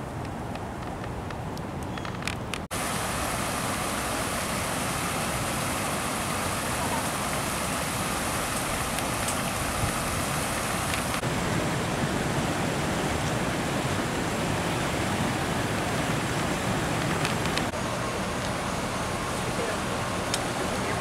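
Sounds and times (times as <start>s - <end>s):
water pouring over a weir: 2.7s - 11.2s.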